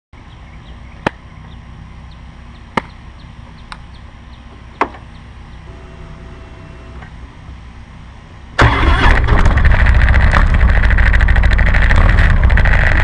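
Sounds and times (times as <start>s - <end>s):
low rumble: 8.6s - 13.0s.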